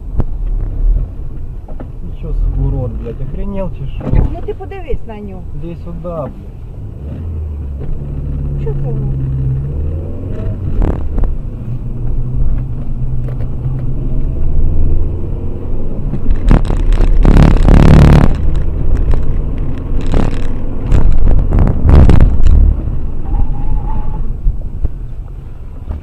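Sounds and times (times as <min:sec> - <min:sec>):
car engine and road noise: 0:00.0 - 0:26.0
loud rushing surge: 0:16.3 - 0:23.4.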